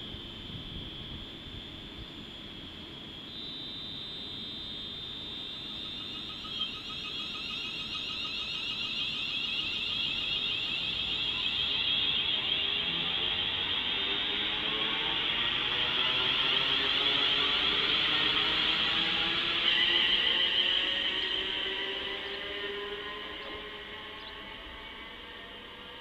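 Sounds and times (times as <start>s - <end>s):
electric train whine: 0.0s - 26.0s.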